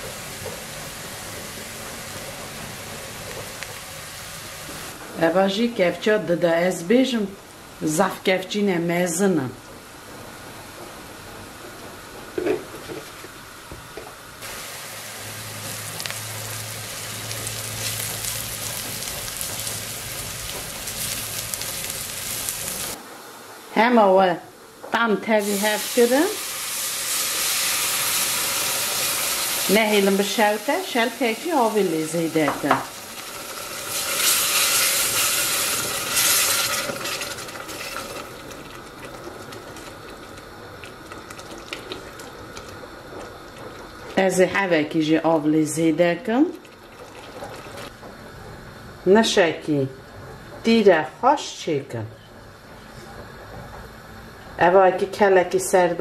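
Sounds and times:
onions sizzling in oil: 0.0 - 5.0, 14.4 - 23.0, 25.0 - 44.3.

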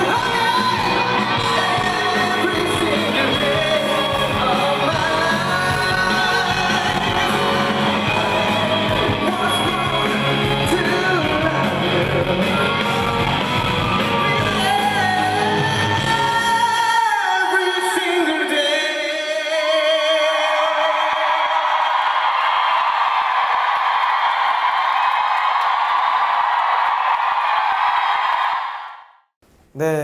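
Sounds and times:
man singing: 0.0 - 13.4, 14.4 - 21.4
live rock band: 0.0 - 16.9.

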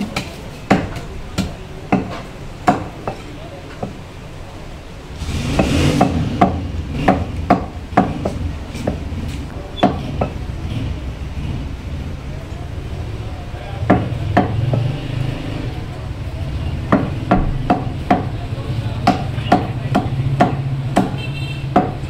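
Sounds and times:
cleaver chopping meat on wood: 0.0 - 3.2, 5.6 - 9.0, 9.8 - 10.4, 13.9 - 14.9, 16.9 - 18.3, 19.0 - 22.0.

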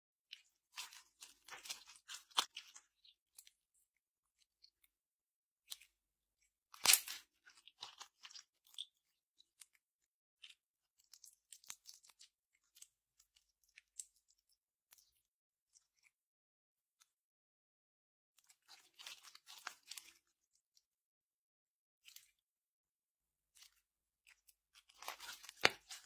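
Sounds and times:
slime sticky clicks and crackles: 6.8 - 8.9.

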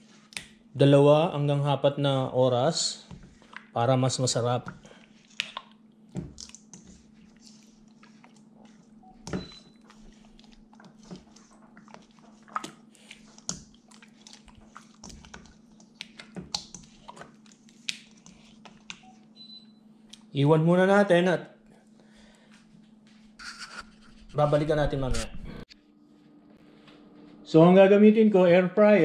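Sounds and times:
low steady hum: 0.0 - 29.0
hands squishing meat in marinade: 3.0 - 19.3.

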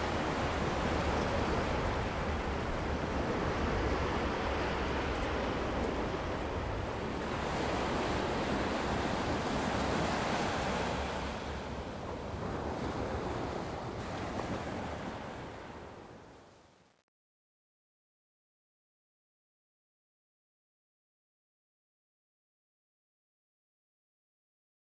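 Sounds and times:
sea waves washing: 0.0 - 16.3.

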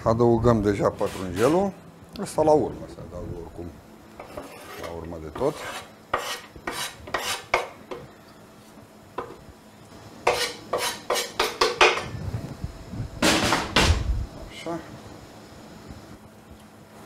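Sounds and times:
knife scraping wooden cutting board: 1.0 - 1.6, 4.2 - 7.6, 10.2 - 11.5.

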